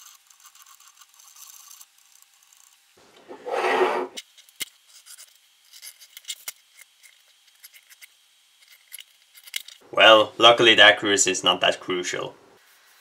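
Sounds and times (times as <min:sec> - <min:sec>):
metal plate scraping wood: 0:03.2 - 0:04.2
pencil scratching: 0:03.2 - 0:04.2.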